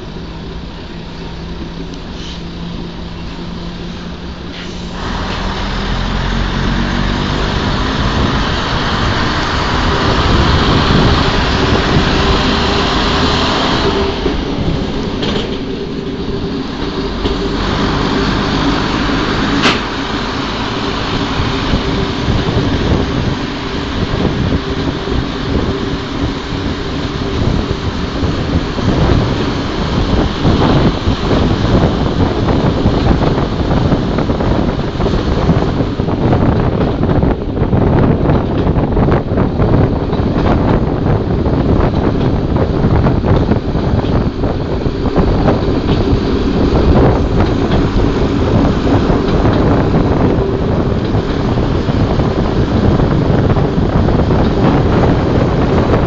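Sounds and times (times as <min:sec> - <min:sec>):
diesel railcar engine accelerating: 0:00.0 - 0:56.0
wheels rumbling on track: 0:00.0 - 0:56.0.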